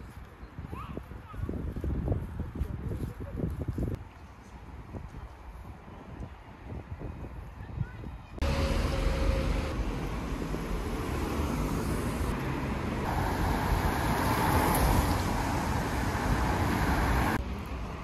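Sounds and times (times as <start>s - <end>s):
cars driving past: 8.4s - 18.0s.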